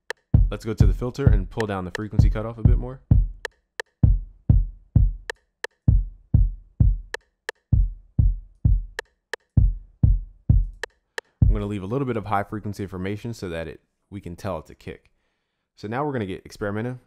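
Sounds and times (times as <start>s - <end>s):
kick drum thumping: 0.3s - 1.6s, 2.2s - 5.3s, 5.9s - 9.0s, 9.6s - 11.7s.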